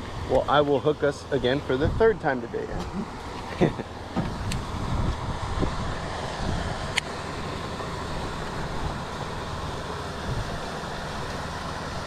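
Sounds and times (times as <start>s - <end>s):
wind on microphone: 1.8s - 3.0s, 4.2s - 7.0s.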